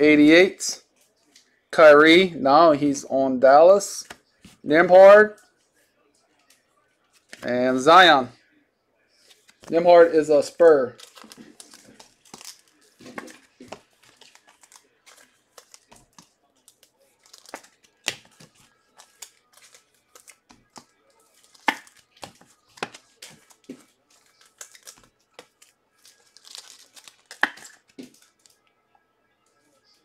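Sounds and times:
plastic wrappers crinkling: 0:10.6 - 0:28.6
cards flicking and snapping: 0:26.3 - 0:28.4.

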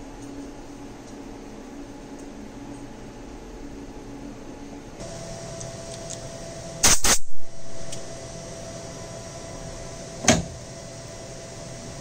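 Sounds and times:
lathe machine hum: 0:05.0 - 0:06.8, 0:07.7 - 0:12.0.

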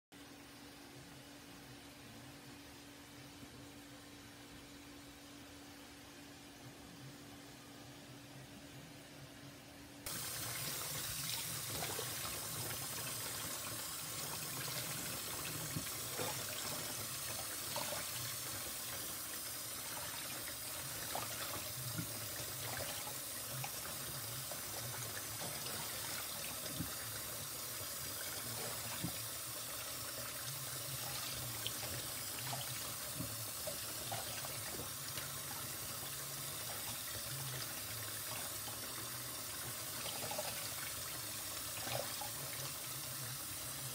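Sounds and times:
tap water running into bowl: 0:10.1 - 0:43.8.

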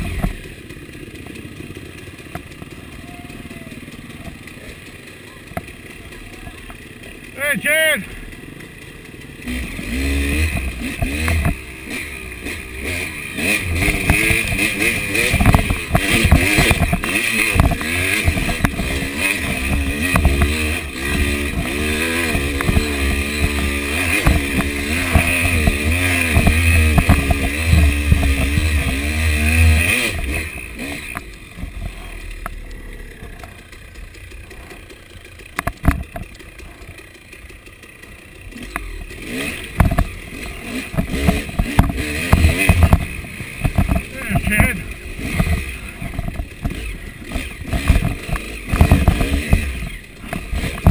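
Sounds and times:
dirt bike engine revving: 0:00.0 - 0:50.9
knocks and rattles: 0:13.6 - 0:32.0, 0:35.5 - 0:37.0, 0:39.7 - 0:50.9.

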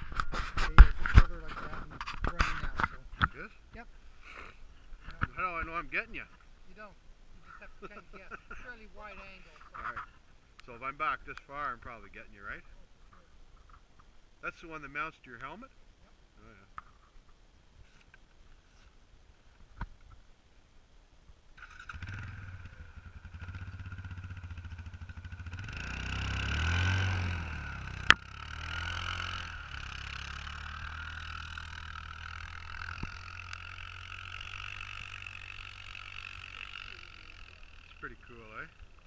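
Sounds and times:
atv engine driving on snow: 0:21.6 - 0:39.0.

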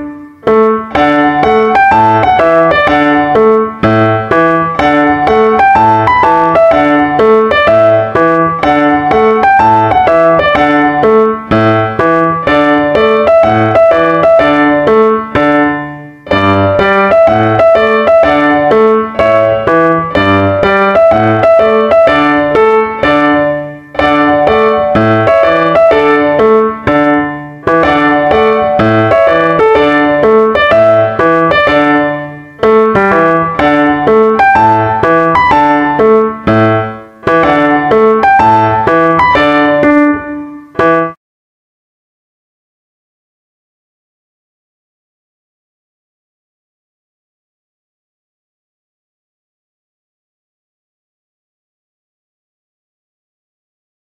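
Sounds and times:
piano music: 0:00.0 - 0:41.2.

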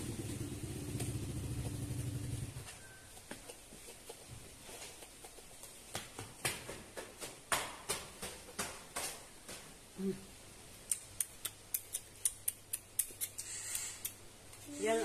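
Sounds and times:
low motor hum: 0:00.0 - 0:02.7.

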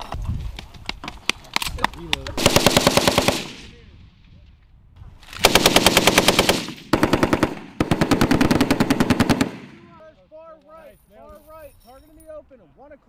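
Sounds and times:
machine gun automatic fire: 0:02.4 - 0:03.7, 0:05.4 - 0:09.8.

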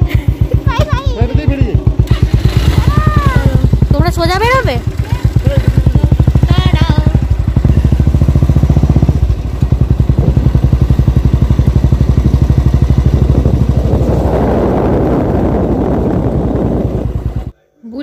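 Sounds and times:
motorcycle engine running: 0:00.0 - 0:17.6.

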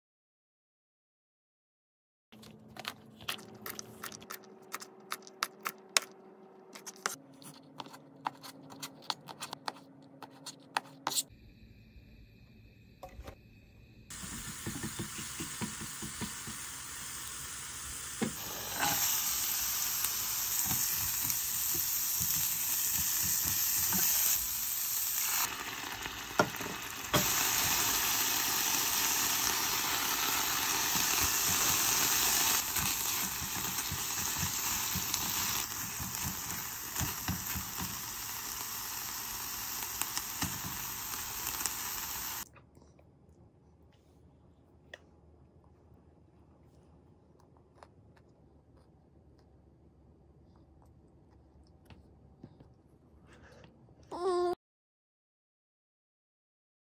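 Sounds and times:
garlic sizzling in oil: 0:14.1 - 0:42.4.

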